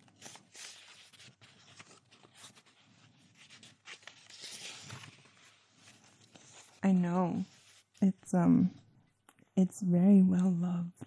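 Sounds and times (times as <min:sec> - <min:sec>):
book pages rustling: 0:00.0 - 0:08.0.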